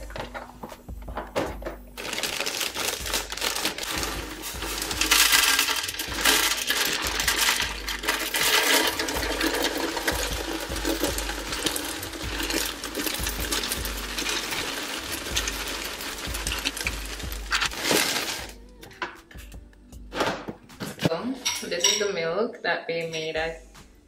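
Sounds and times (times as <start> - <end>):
cereal pouring and rattling: 2.0 - 18.6.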